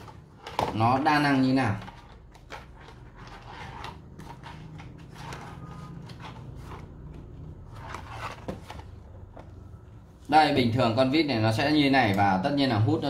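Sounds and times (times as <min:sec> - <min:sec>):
cardboard boxes scraping and rustling: 0:02.8 - 0:09.0.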